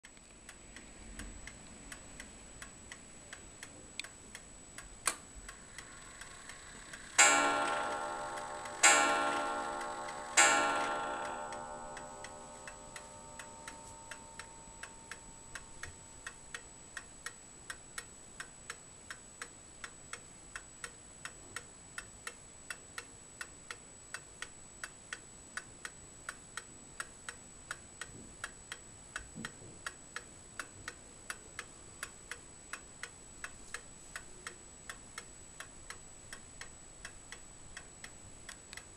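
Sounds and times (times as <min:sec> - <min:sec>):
clock ticking: 0:00.0 - 0:38.9
clock striking: 0:05.5 - 0:16.7
sharp click: 0:07.2 - 0:16.7.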